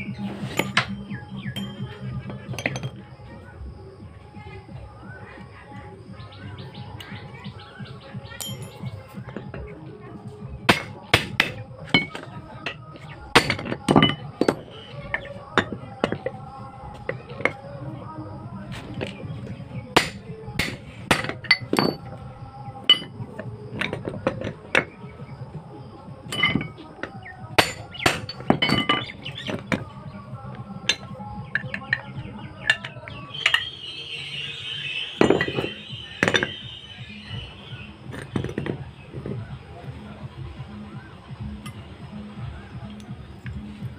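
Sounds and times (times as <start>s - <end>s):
hammer striking steel: 10.7s - 12.3s, 20.0s - 22.0s, 27.6s - 29.1s.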